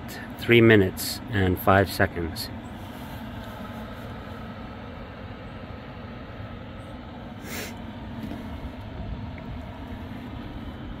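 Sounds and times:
electric kettle rumbling: 0:02.5 - 0:11.0.

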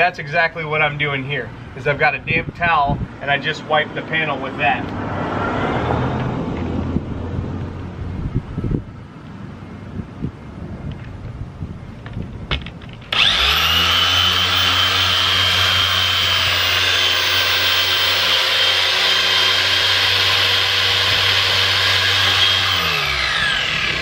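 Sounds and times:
electric polisher motor whining: 0:13.1 - 0:24.0.

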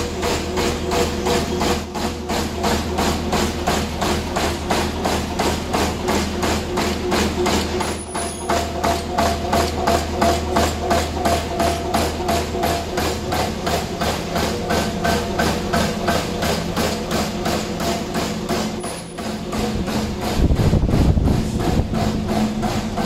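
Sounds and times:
machine knocking rhythmically: 0:00.0 - 0:23.0
steady low machine hum: 0:00.0 - 0:23.0.

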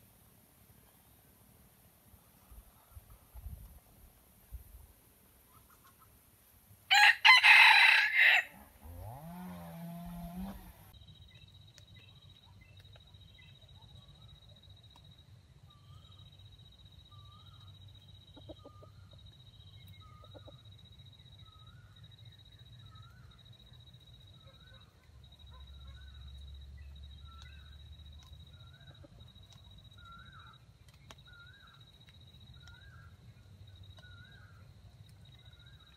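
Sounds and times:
rooster crowing: 0:06.9 - 0:10.7.

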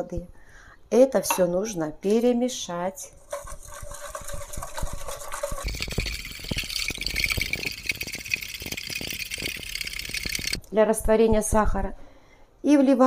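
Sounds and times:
whisk beating in plastic bowl: 0:03.1 - 0:10.6.

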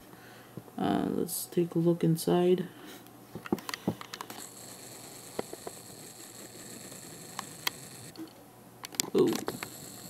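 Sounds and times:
zoom lens motor whining: 0:04.3 - 0:08.3, 0:09.2 - 0:10.0.

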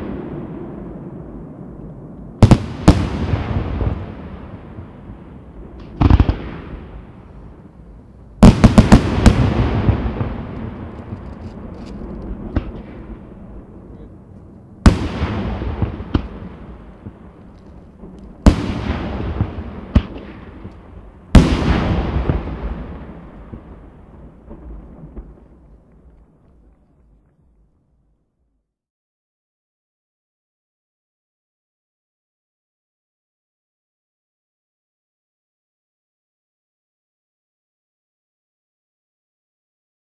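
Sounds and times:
fireworks bursting with echo: 0:00.0 - 0:27.7.

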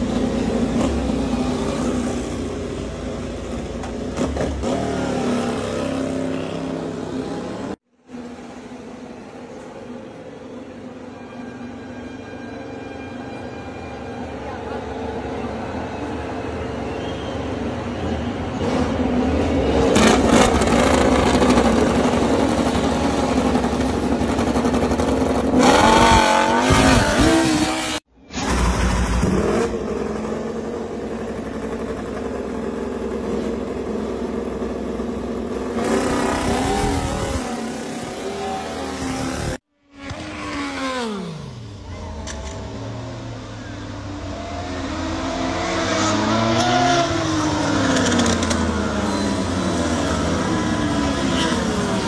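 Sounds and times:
motorcycle engine running: 0:19.8 - 0:28.0, 0:28.6 - 0:38.7.

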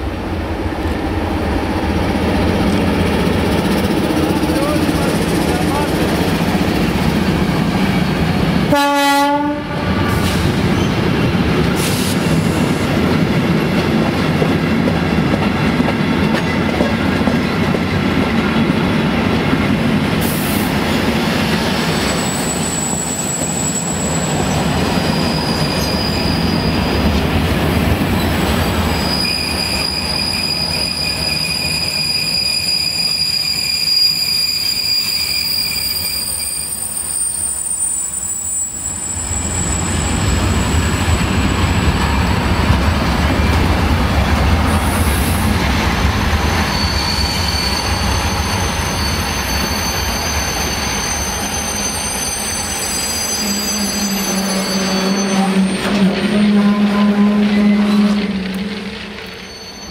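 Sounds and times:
train wheels rumbling on rails: 0:00.0 - 0:59.9
wheels squealing: 0:21.8 - 0:27.2, 0:28.1 - 0:43.6, 0:46.4 - 0:56.4, 0:57.5 - 0:59.9.

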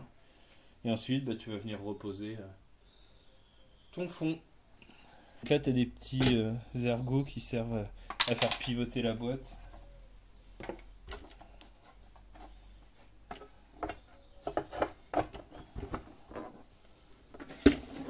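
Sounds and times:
plastic parts clicking and knocking: 0:08.0 - 0:08.8, 0:10.6 - 0:12.5, 0:13.2 - 0:18.0.

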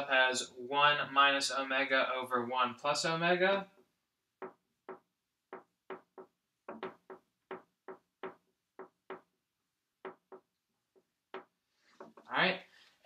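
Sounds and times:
marker writing on whiteboard: 0:04.4 - 0:09.3, 0:10.0 - 0:12.3.

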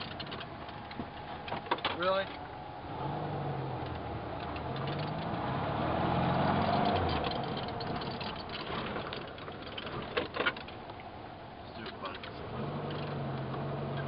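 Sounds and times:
small vehicle engine running: 0:11.8 - 0:14.0.

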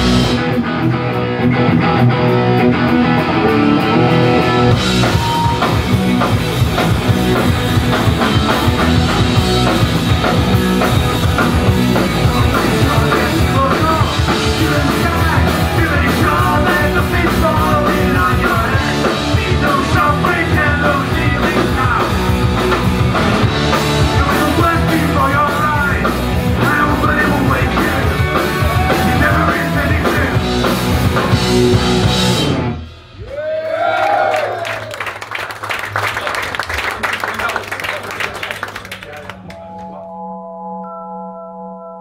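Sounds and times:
live rock band playing: 0:00.0 - 0:33.2.

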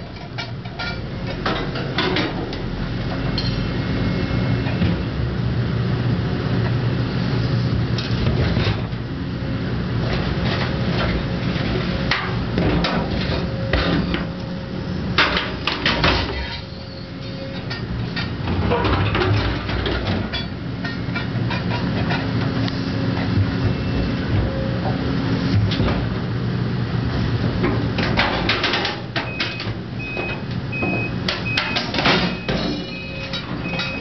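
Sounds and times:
metal clanks and knocks: 0:00.0 - 0:02.6, 0:17.5 - 0:22.4
diesel engine and hydraulics: 0:00.0 - 0:34.0.

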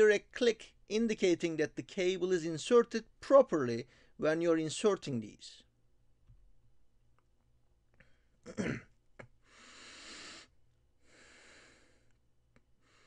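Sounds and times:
man breathing: 0:09.4 - 0:12.2, 0:12.8 - 0:13.0.

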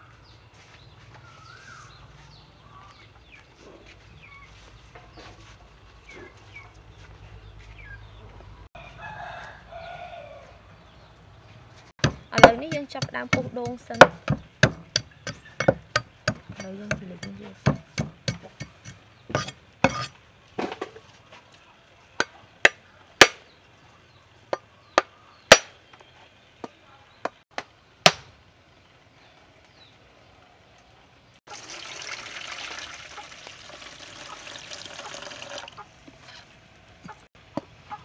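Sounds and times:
cleaver knocking on coconut: 0:12.0 - 0:18.8
water pouring into metal bowl: 0:31.5 - 0:35.8.

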